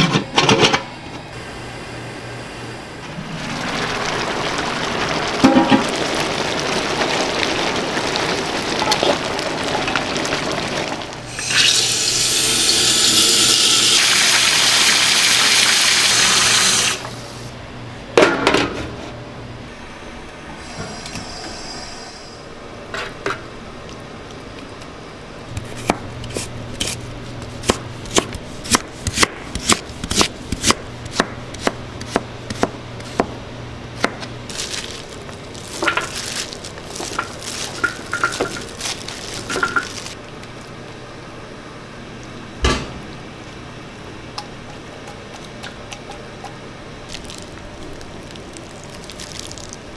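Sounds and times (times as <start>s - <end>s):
sauce cooking in a wok: 3.0s - 17.5s, 34.4s - 40.8s
tap water rushing: 3.1s - 14.4s, 37.0s - 38.7s.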